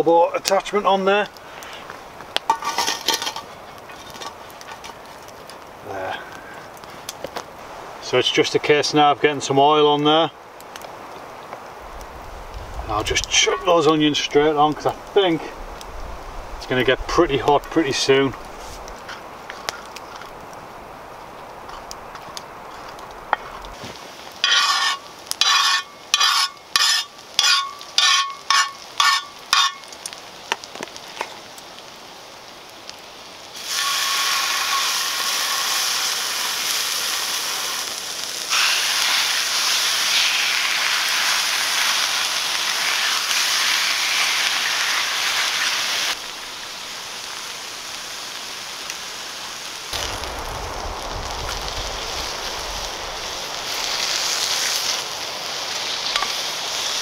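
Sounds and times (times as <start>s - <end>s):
steak sizzling in oil: 11.6s - 57.0s
wooden spatula scraping onions: 21.7s - 29.8s.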